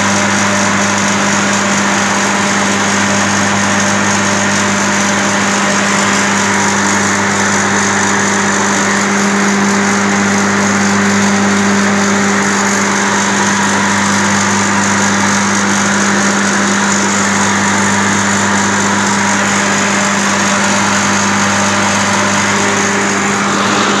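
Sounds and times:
compressor running with hum: 0.0s - 24.0s.

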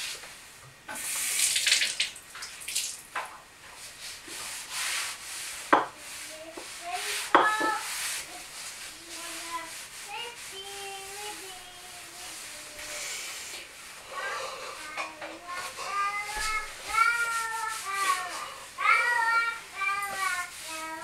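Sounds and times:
scraping or rubbing bursts: 3.9s - 13.4s, 14.4s - 21.0s.

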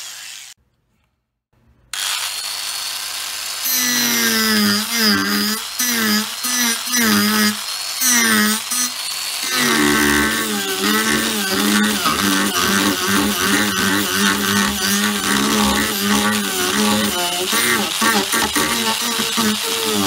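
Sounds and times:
angle grinder carving wood: 2.0s - 20.0s.

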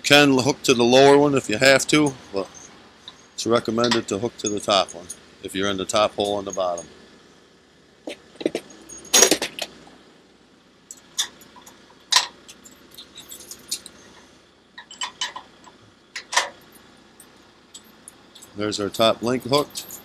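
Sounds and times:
metal pin clinking: 10.9s - 14.1s, 14.8s - 20.0s.

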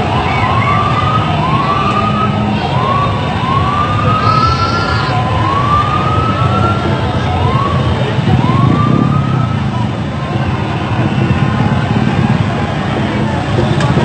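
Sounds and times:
traffic: 0.0s - 14.0s
rising siren-like tone: 0.4s - 6.9s
crowd celebrating: 3.8s - 6.4s.

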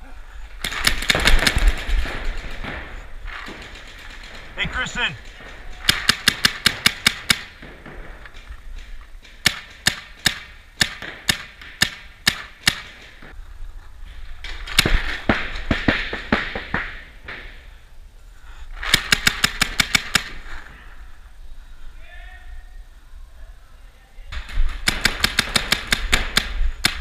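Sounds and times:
paintball markers firing: 5.2s - 13.3s, 24.4s - 27.0s.

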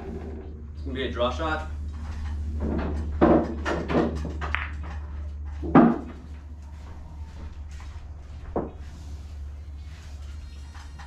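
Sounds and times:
low hum: 0.0s - 11.0s
pool balls knocking: 2.2s - 6.6s.

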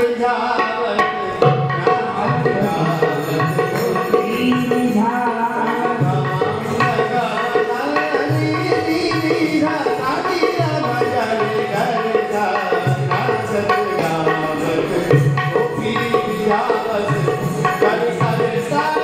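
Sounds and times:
tabla rhythm: 0.0s - 19.0s.

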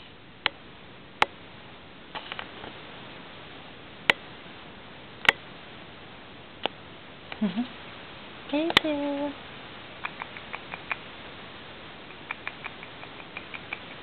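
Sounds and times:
rabbit claws tapping on floor: 10.0s - 11.1s, 12.1s - 14.0s.

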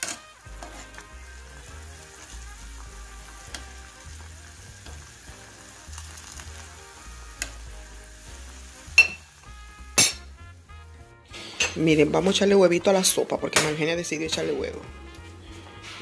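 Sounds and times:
soup boiling and bubbling: 0.0s - 10.0s
spoon knocking metal pot: 9.0s - 9.2s.

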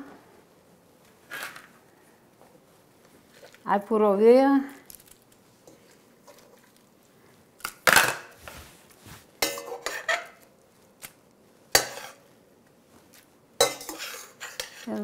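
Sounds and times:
metal tongs clanking in a pot: 9.4s - 10.3s, 11.8s - 12.2s, 13.6s - 15.0s.

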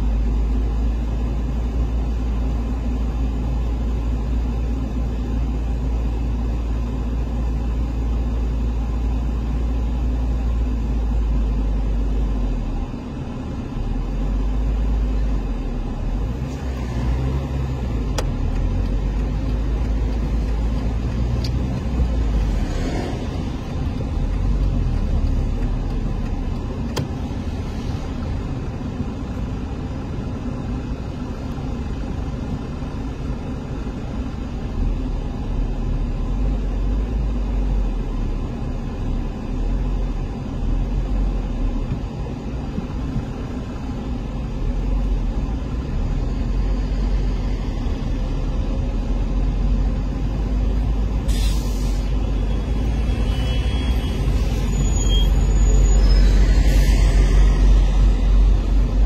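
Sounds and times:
car road and engine rumble: 0.0s - 59.0s
brief air hiss: 51.2s - 52.2s.

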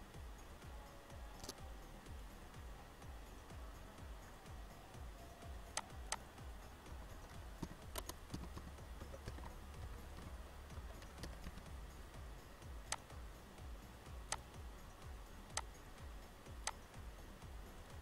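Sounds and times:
low hum: 0.0s - 18.0s
mouse clicks: 1.4s - 1.6s, 5.7s - 6.3s, 7.6s - 9.5s, 12.8s - 13.1s, 14.3s - 14.5s, 15.5s - 15.8s, 16.6s - 16.8s.

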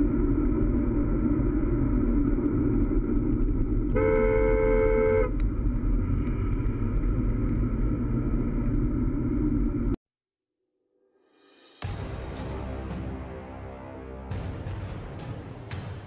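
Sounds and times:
car driving rumble: 0.0s - 10.0s
two-tone car horn honk: 4.0s - 5.3s.

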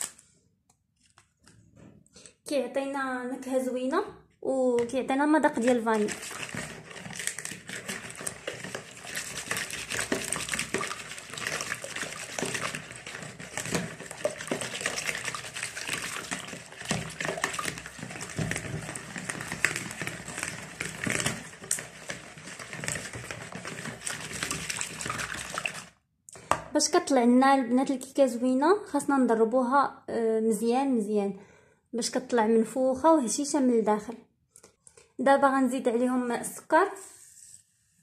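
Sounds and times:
whisk beating eggs in bowl: 5.6s - 26.0s.

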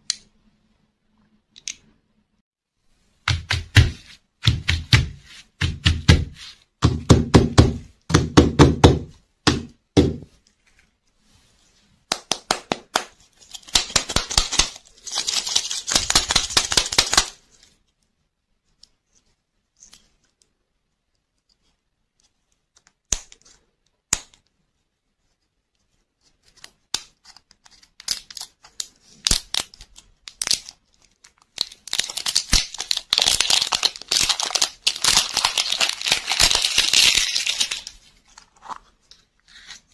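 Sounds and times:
plastic wrapper crinkling and tearing: 13.3s - 17.4s, 27.7s - 39.1s.

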